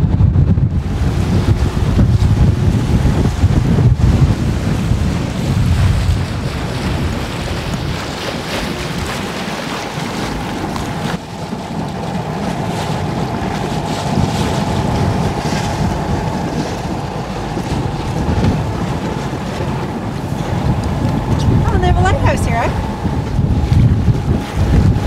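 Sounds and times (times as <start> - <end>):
water rushing past hull: 0.0 - 25.0
wind buffeting microphone: 0.0 - 25.0
steady high hum: 10.4 - 25.0.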